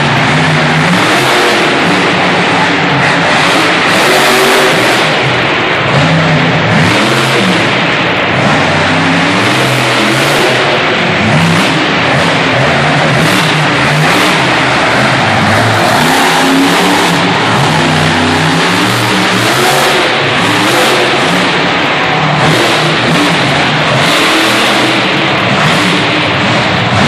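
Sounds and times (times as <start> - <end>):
truck engine revving hard: 0.0 - 27.0.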